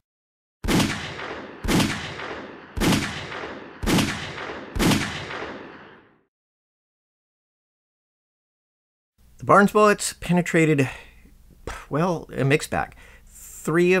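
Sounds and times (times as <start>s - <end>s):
pistol gunshots: 0.6s - 6.2s.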